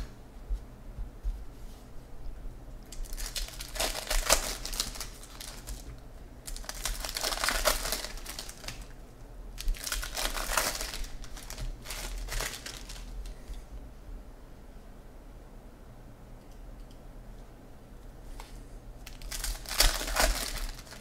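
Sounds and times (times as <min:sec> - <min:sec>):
foil wrapper crinkling: 0:02.9 - 0:09.0, 0:09.6 - 0:13.4, 0:19.0 - 0:21.0.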